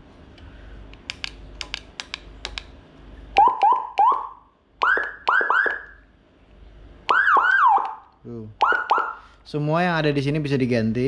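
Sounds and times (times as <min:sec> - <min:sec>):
siren chirps: 0:03.4 - 0:06.0, 0:07.1 - 0:08.0, 0:08.6 - 0:09.3
siren rising whoops: 0:03.4 - 0:06.0, 0:07.1 - 0:08.0, 0:08.6 - 0:09.2.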